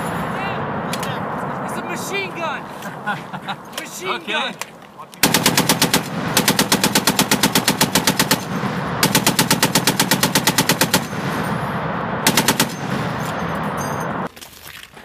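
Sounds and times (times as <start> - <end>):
machine gun firing bursts: 5.2 - 11.5, 12.2 - 14.3
gunfire echoing: 5.2 - 14.3.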